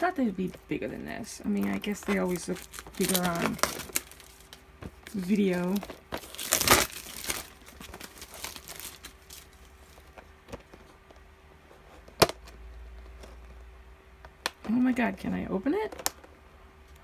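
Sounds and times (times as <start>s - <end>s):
plastic wrapping crinkling: 0.0s - 10.3s.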